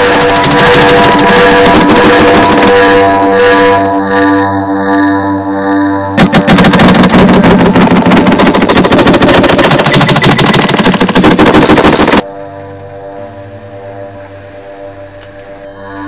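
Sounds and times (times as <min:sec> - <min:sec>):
fast rattle of sharp clicks: 0:00.0 - 0:02.7, 0:06.2 - 0:12.2
steady droning music: 0:00.0 - 0:16.0.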